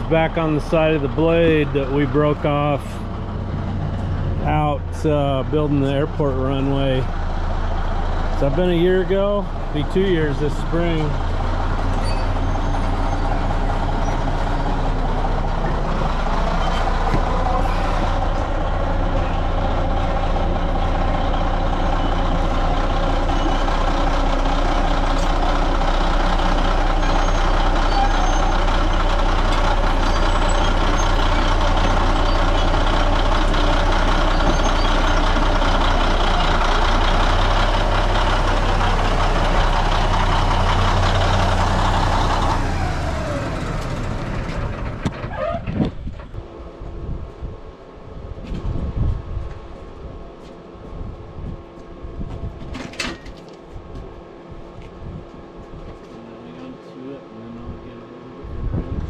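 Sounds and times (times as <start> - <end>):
bulldozer diesel engine under load: 0.0 - 56.9.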